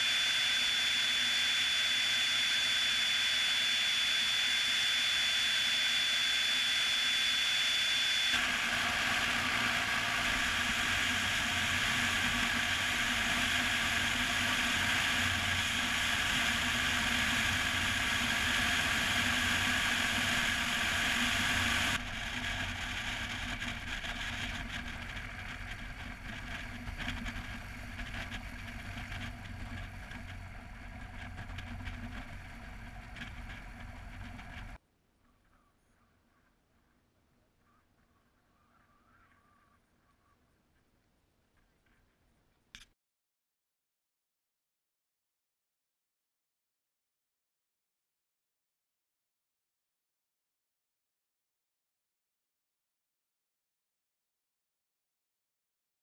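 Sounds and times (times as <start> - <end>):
thin steady high tone: 0.0 - 8.4
propeller plane engine: 0.0 - 34.8.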